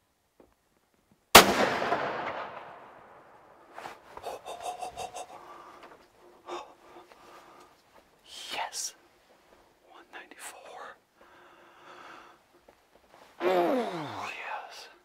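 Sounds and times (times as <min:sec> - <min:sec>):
rifle shot with echo: 0:01.4 - 0:03.4.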